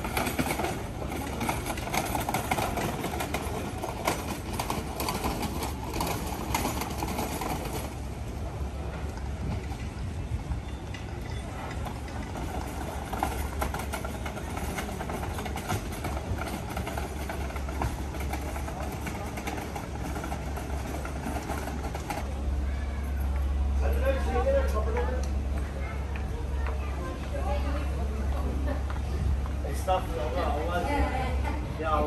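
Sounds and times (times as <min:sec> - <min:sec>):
quick knocking footsteps and clatter: 0:00.0 - 0:08.0, 0:11.8 - 0:22.3
traffic engine rumble: 0:00.0 - 0:32.0.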